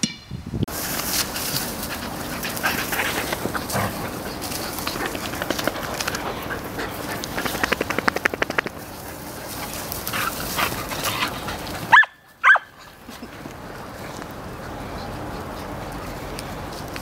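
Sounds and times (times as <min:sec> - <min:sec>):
rapid patter of ticks: 0:01.2 - 0:11.9, 0:13.0 - 0:17.0
dog barking: 0:11.9 - 0:12.8.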